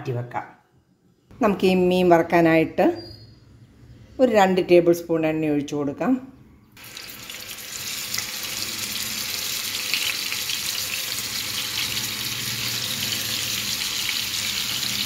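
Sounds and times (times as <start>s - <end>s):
fish sizzling in hot oil: 6.8s - 15.0s.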